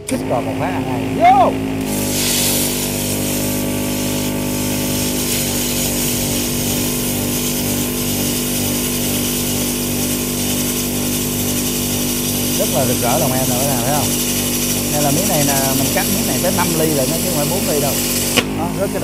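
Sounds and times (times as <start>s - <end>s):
low buzzing hum: 0.0s - 19.0s
plasma cutter hissing: 0.0s - 19.0s.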